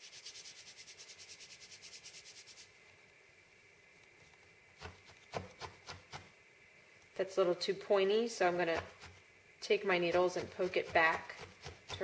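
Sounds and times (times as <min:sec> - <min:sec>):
wool rubbed between palms: 0:00.0 - 0:02.7.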